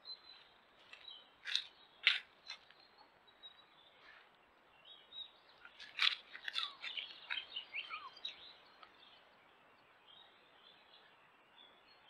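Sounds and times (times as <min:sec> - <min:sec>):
faint birdsong: 0:00.0 - 0:12.0
crunching scraping clicks: 0:00.9 - 0:02.8, 0:05.6 - 0:07.6.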